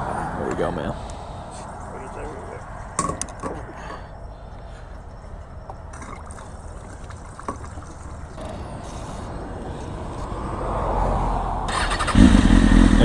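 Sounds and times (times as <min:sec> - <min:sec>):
gasoline pouring into fuel tank: 0:06.0 - 0:08.4.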